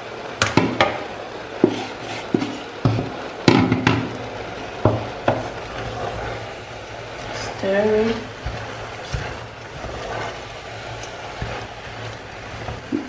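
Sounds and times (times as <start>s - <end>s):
low simmering hiss: 0.0s - 13.0s
wooden spoon knocking on pot: 4.8s - 5.6s.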